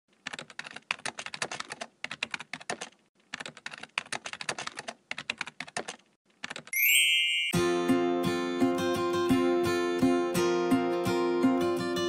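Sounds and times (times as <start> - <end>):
keyboard typing clicks: 0.2 - 6.8.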